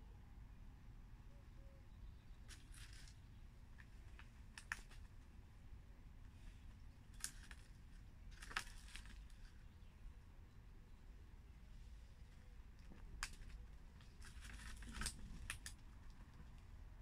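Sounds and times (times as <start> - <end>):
clicks and rustles in seed tray: 2.4 - 5.4, 6.2 - 9.8, 12.3 - 16.7.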